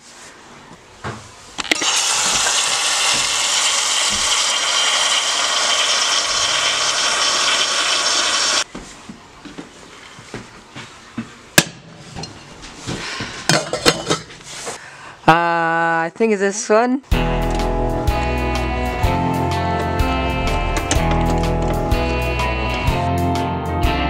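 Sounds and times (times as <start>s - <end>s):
tap water running into saucepan: 1.8s - 8.6s.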